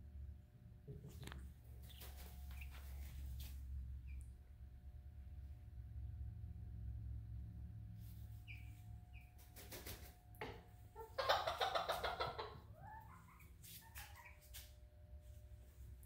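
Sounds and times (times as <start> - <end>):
rustling: 1.1 - 3.8
hen chirping: 8.4 - 9.5, 10.9 - 14.6
hen squawking: 11.0 - 14.5.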